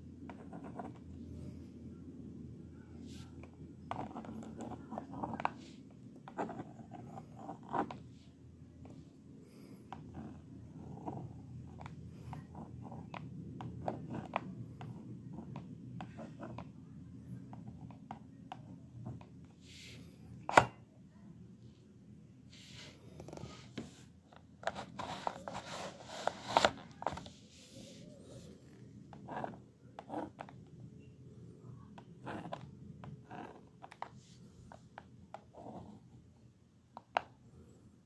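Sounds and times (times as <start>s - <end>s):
plastic stylus tapping and scratching: 32.0s - 35.1s.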